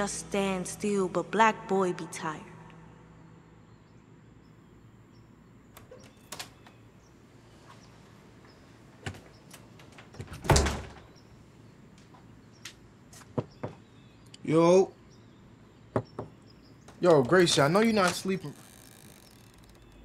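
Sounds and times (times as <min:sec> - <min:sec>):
door thud: 0:10.0 - 0:11.1
small knocks: 0:15.9 - 0:18.2.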